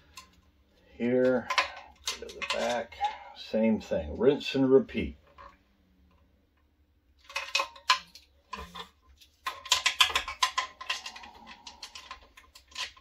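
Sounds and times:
sheet metal and tools clattering: 1.3s - 3.2s, 7.2s - 13.0s.

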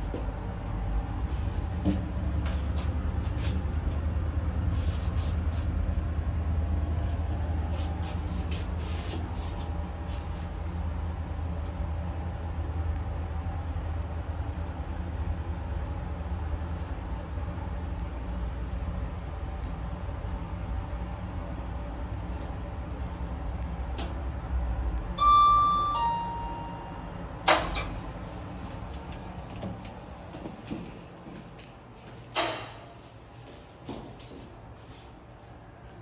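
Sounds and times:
lift humming: 18.9s - 32.3s.

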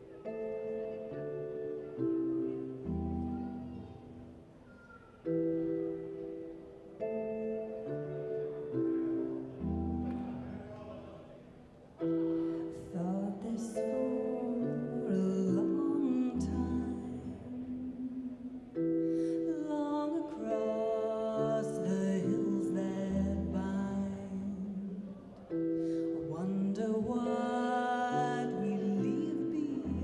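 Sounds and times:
slow gentle music: 0.0s - 30.0s
person singing: 12.0s - 30.0s.

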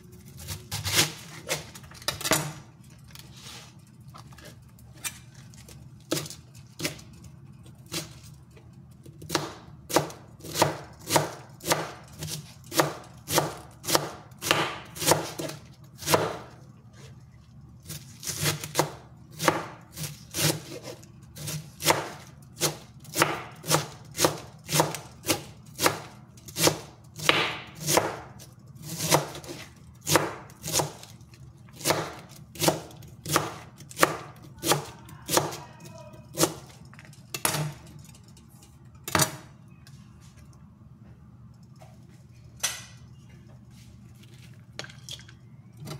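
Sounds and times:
knife chopping cabbage on board: 9.2s - 16.5s, 17.9s - 31.1s, 31.7s - 35.7s.

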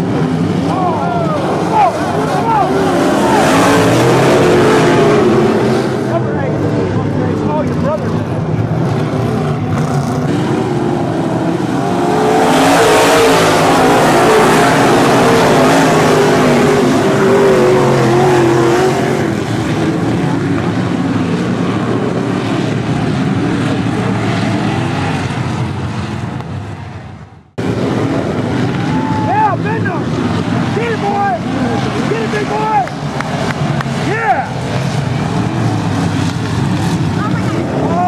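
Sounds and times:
race car engines at full throttle: 0.0s - 38.0s.

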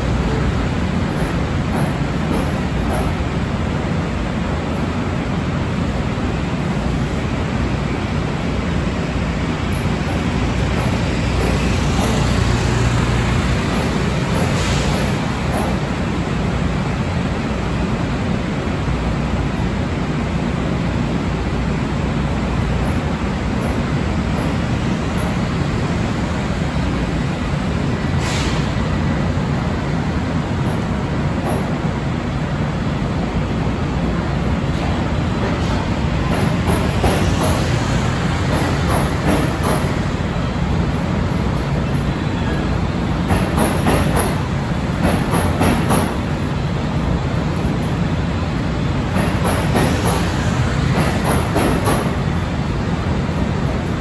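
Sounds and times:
train rumbling past: 0.0s - 54.0s
sharp train wheel clacks: 0.2s - 3.3s, 9.6s - 16.1s, 34.7s - 40.1s, 43.2s - 46.3s, 49.0s - 52.2s.

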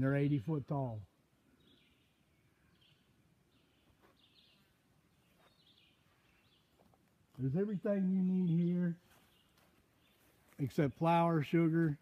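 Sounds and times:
faint bird chirps: 1.5s - 7.0s, 7.7s - 10.7s.

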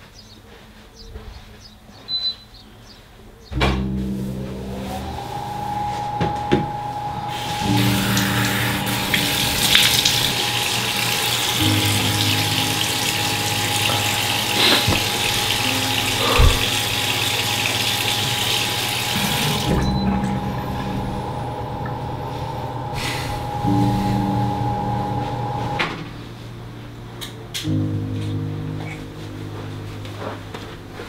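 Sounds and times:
sink tap running: 7.3s - 22.0s.

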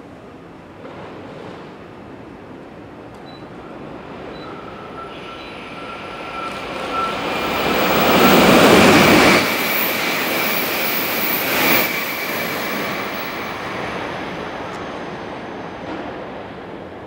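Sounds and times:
high-speed train passing: 0.0s - 17.0s.

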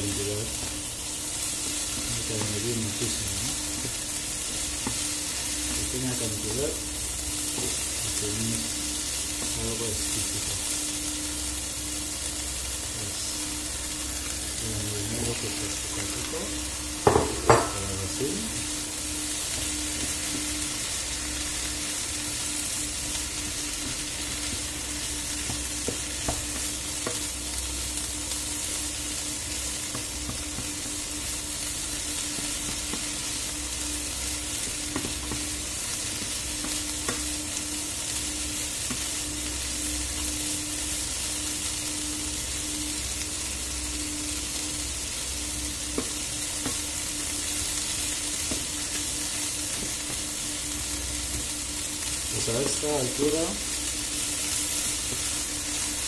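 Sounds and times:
steady low hum: 0.0s - 56.0s
vegetables sizzling in oil: 0.0s - 56.0s
spatula tapping pan: 17.0s - 17.9s, 25.3s - 27.3s.

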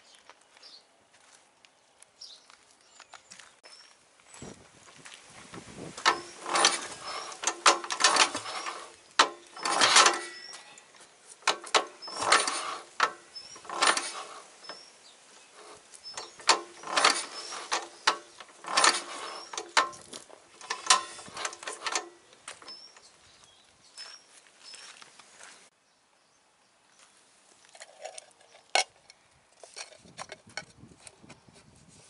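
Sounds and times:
engine cranked by hand clattering: 5.9s - 23.1s.

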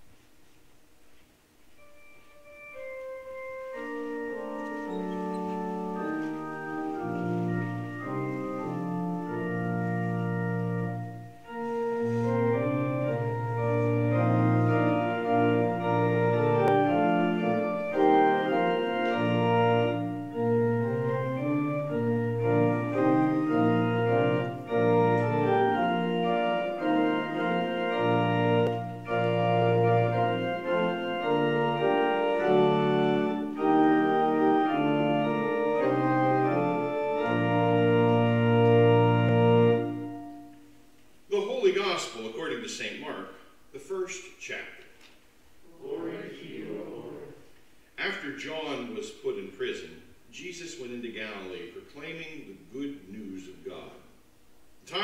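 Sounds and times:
church organ chords: 1.6s - 43.1s.

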